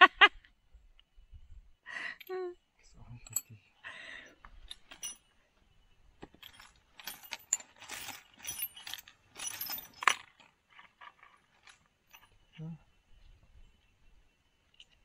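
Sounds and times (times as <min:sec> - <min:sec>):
metal nuts and washers clinking: 0:03.2 - 0:03.6, 0:04.5 - 0:05.3, 0:06.2 - 0:12.4.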